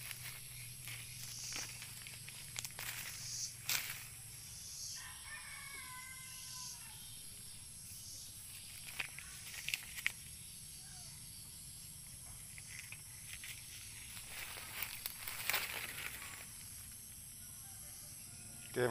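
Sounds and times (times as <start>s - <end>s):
rooster crowing: 4.8s - 7.2s, 17.3s - 18.9s.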